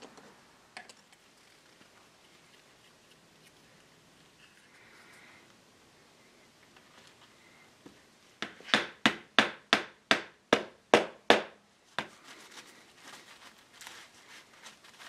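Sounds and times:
hammer tapping wooden wedge: 0:08.4 - 0:12.2.

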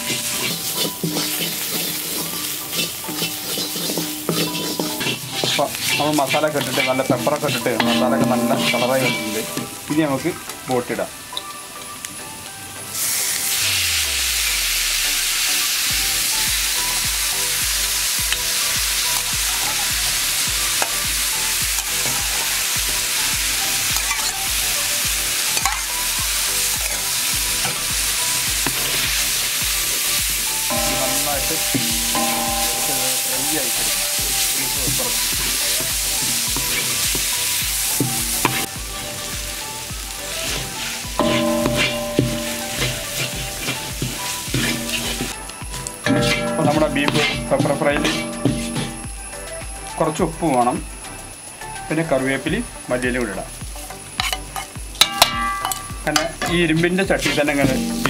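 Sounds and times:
wooden spatula scraping wok: 0:00.0 - 0:10.2, 0:26.6 - 0:49.0, 0:56.5 - 0:58.0
meat sizzling loudly in hot oil: 0:00.0 - 0:58.0.

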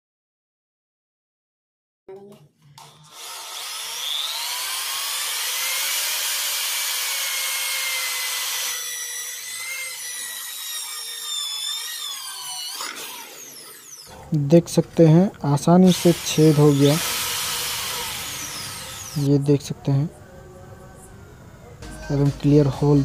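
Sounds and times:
drill bit cutting into wood: 0:02.8 - 0:14.2, 0:15.8 - 0:19.3
electric drill motor whining: 0:02.8 - 0:14.2, 0:15.8 - 0:19.4.

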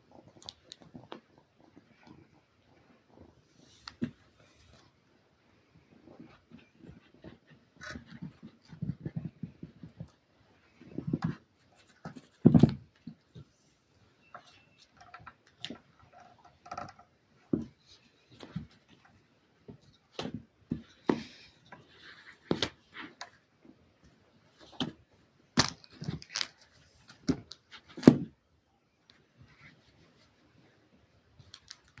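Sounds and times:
kitten playing thumps and taps: 0:06.0 - 0:13.5.

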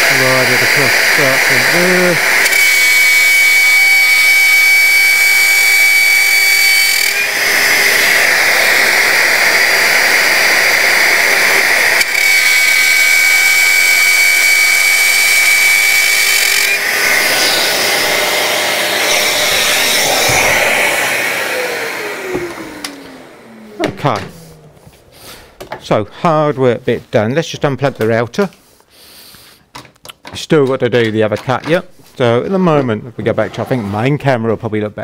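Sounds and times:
motor winding down: 0:00.0 - 0:25.6
router motor whining: 0:00.0 - 0:26.0
router cutting wood: 0:00.0 - 0:26.5.

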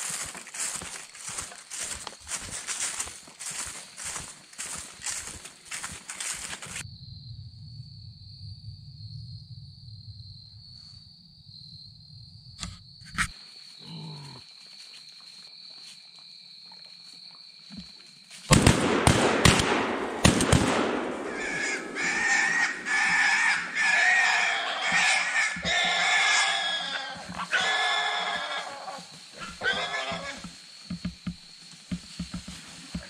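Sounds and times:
loud sharp bangs: 0:18.5 - 0:22.9
hogs squealing: 0:21.3 - 0:30.5.

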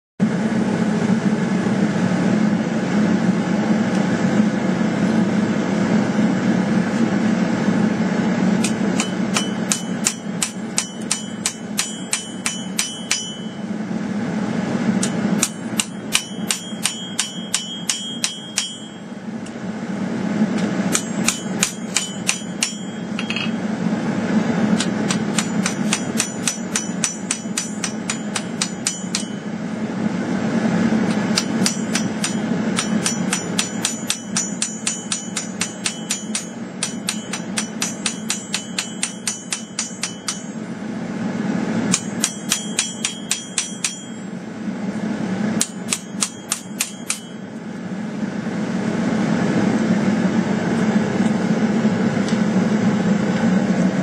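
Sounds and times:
hammer striking metal on anvil: 0:08.6 - 0:13.7, 0:15.0 - 0:19.1, 0:20.6 - 0:23.6, 0:24.8 - 0:29.5, 0:31.1 - 0:40.7, 0:41.9 - 0:44.3, 0:45.6 - 0:47.6.

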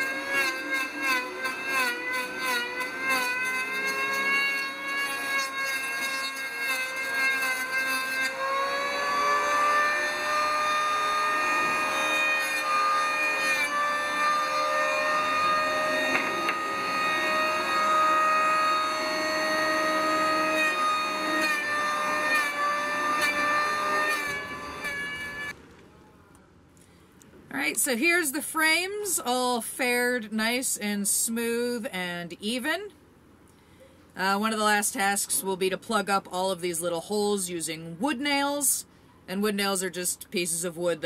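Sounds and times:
power tool motor whine: 0:00.0 - 0:25.6.

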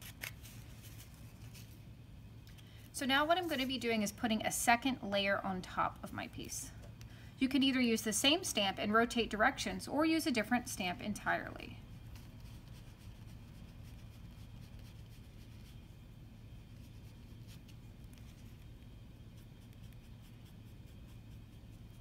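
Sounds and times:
steady low hum: 0:00.0 - 0:22.0
foam brush dabbing paint: 0:11.4 - 0:16.0, 0:16.6 - 0:22.0.

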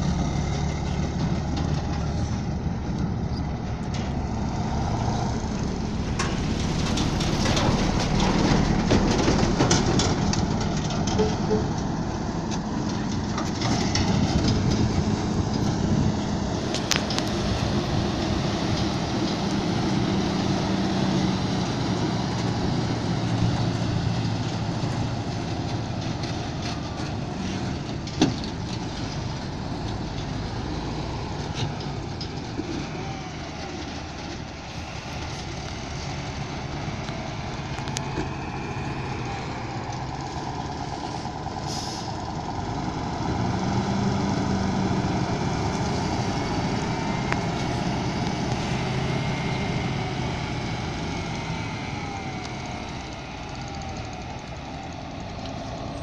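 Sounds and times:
diesel truck engines: 0:00.0 - 0:56.0
short hiss: 0:41.7 - 0:42.1.

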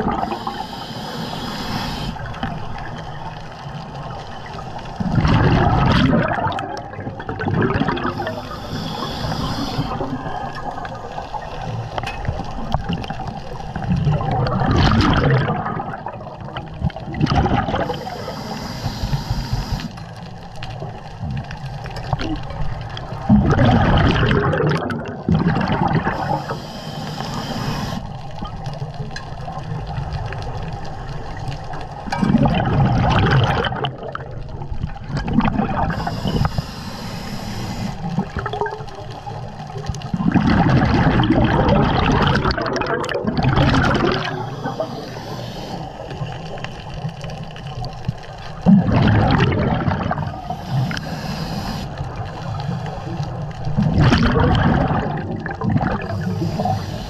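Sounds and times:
regulator inhalation hiss: 0:00.0 - 0:02.4, 0:07.9 - 0:12.0, 0:17.8 - 0:20.0, 0:26.0 - 0:28.2, 0:35.8 - 0:38.3, 0:44.2 - 0:47.6, 0:50.2 - 0:53.2, 0:56.0 - 0:57.0
exhaled bubbles gurgling: 0:00.0 - 0:57.0.

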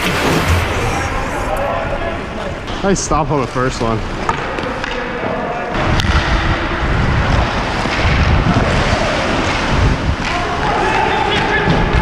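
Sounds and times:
wind rushing over microphone: 0:05.8 - 0:10.8.

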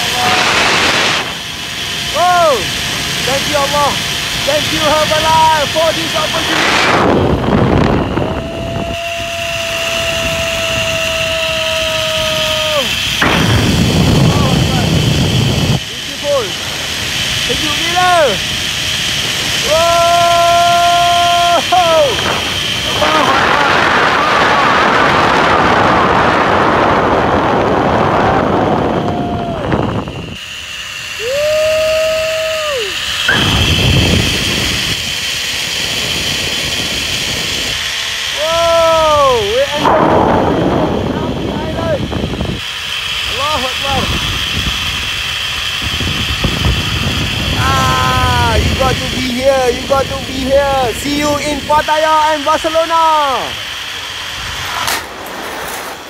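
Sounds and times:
high whine sliding down: 0:00.0 - 0:56.0
wind rushing over microphone: 0:00.0 - 0:56.0
rush of air: 0:06.4 - 0:17.6, 0:39.3 - 0:43.3, 0:53.4 - 0:56.0
person shouting woo: 0:08.2 - 0:12.9, 0:19.6 - 0:22.2, 0:28.9 - 0:29.8, 0:31.2 - 0:33.4, 0:38.4 - 0:39.8.

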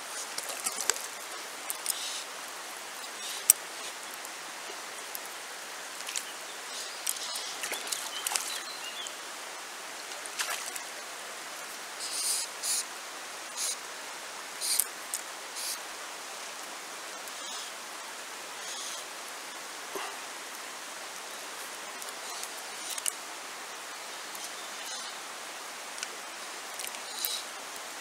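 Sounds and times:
water splashes: 0:00.0 - 0:02.0, 0:07.0 - 0:09.0, 0:10.0 - 0:11.0
river water over stones: 0:00.0 - 0:28.0.

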